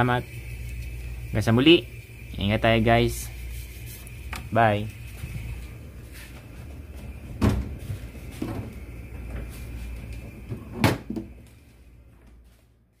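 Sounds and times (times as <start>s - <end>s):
low steady hum: 0.0s - 13.0s
knocks and thumps: 7.3s - 9.5s.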